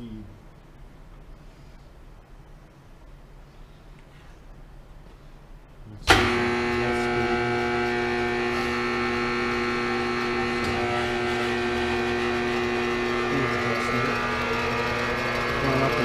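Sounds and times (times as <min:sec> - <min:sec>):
lathe running with whine: 0:06.1 - 0:16.0.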